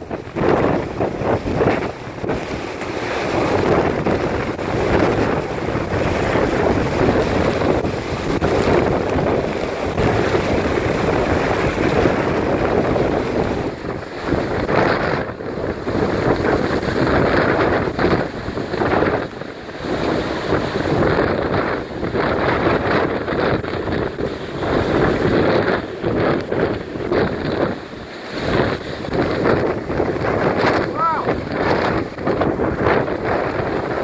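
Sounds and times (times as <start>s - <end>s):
strong wind buffeting microphone: 0.0s - 34.0s.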